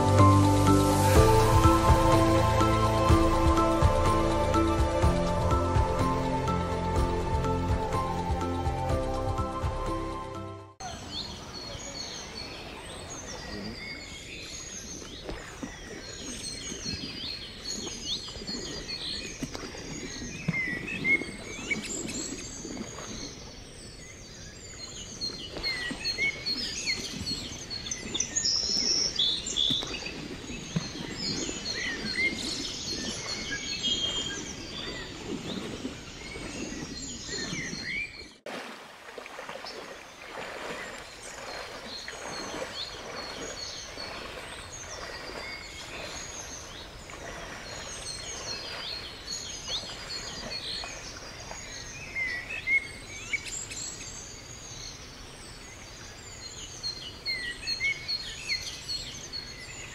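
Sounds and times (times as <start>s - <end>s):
small birds chirping: 39.6s - 59.9s.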